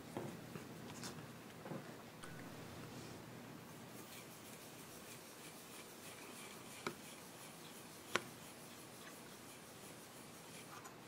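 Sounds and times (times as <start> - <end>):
cloth rubbing on metal: 2.5 - 11.0.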